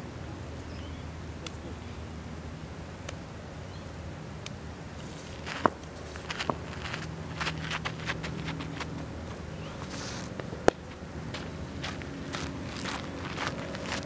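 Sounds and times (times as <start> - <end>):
footsteps on gravel: 5.0 - 14.0.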